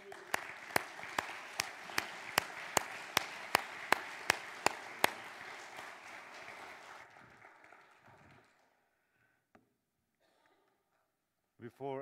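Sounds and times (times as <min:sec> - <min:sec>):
sharp close hand claps: 0:00.0 - 0:08.7
congregation applauding: 0:00.0 - 0:09.0.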